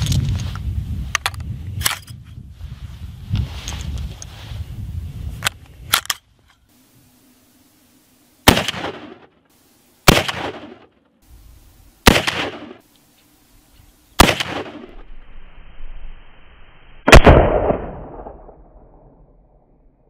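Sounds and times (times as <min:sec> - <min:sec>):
metallic clicks of rifle loading: 0:00.0 - 0:02.2, 0:05.4 - 0:06.7
rifle shots with echo: 0:08.4 - 0:09.3, 0:10.1 - 0:10.9, 0:12.0 - 0:12.8, 0:14.2 - 0:15.0, 0:17.1 - 0:19.1.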